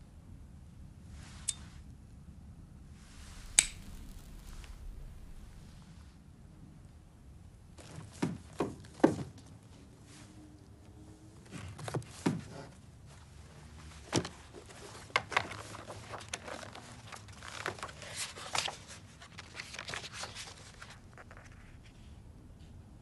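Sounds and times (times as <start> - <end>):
book knocks: 7.9 - 9.4, 11.8 - 12.6
book pages turning: 11.4 - 22.1.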